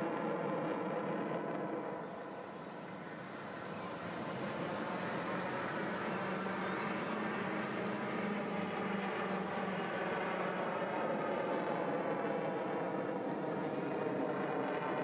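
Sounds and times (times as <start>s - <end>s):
aircraft engine droning: 2.1s - 15.0s.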